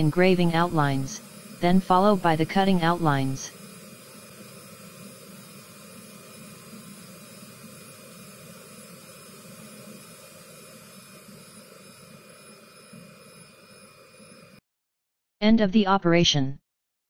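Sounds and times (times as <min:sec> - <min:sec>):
low hum: 0:00.0 - 0:03.5
laser cutter whirring hiss: 0:01.0 - 0:01.6, 0:03.4 - 0:14.6.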